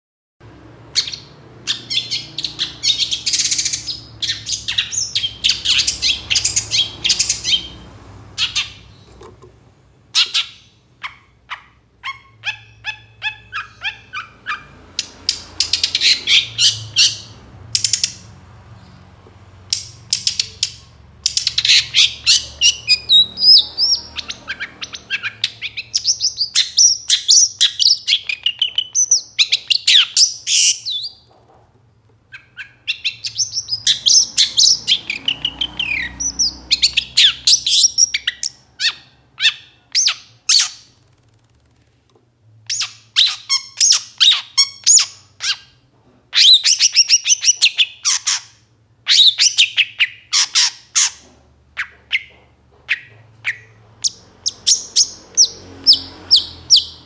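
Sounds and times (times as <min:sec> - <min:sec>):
bird singing rapid chattering notes: 0:00.9 - 0:07.8, 0:10.2 - 0:19.0, 0:19.7 - 0:31.3, 0:32.3 - 0:41.1.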